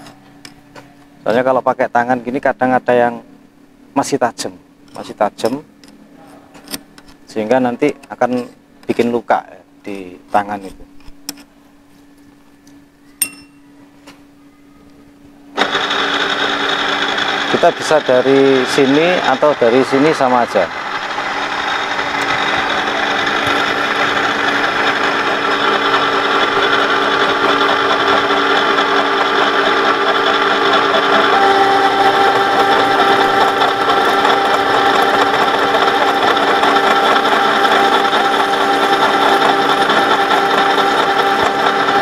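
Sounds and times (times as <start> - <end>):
milling machine cutting steel: 15.6 - 42.0.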